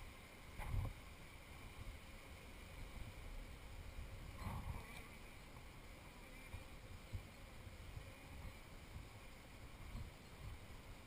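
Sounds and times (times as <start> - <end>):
faint steady background: 0.0 - 11.0.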